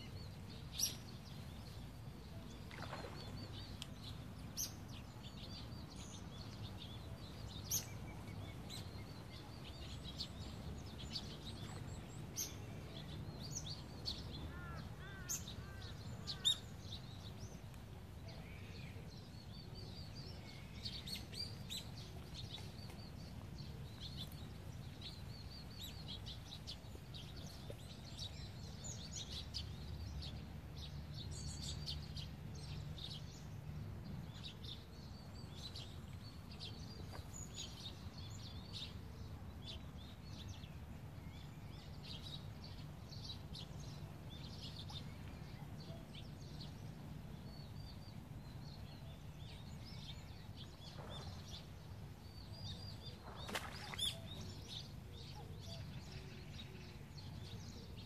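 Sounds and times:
birds chirping: 34.3s - 58.0s.

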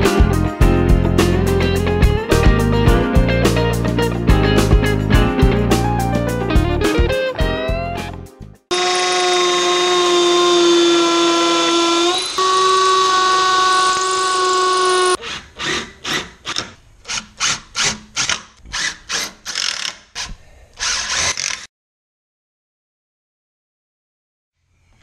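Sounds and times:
cordless drill whining: 8.7s - 15.4s, 17.8s - 21.7s
drill driving screws into wood: 8.7s - 21.7s.

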